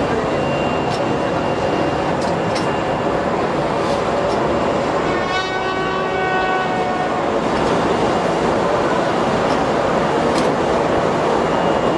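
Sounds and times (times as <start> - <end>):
ship noise: 0.0 - 11.9
ship's horn blast: 5.0 - 7.5.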